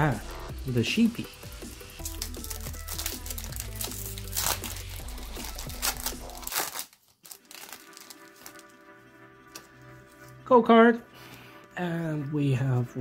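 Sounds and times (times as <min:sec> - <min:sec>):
background music: 0:00.0 - 0:13.0
foil wrapper crinkling and tearing: 0:02.0 - 0:08.8.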